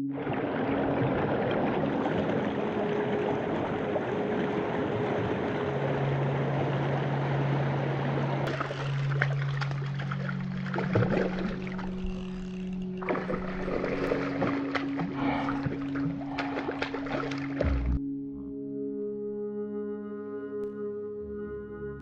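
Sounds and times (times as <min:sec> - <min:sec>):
small water splashes: 0:00.0 - 0:18.0
stream rushing over stones: 0:00.1 - 0:12.0, 0:13.0 - 0:17.8
music with long held notes: 0:02.0 - 0:22.0.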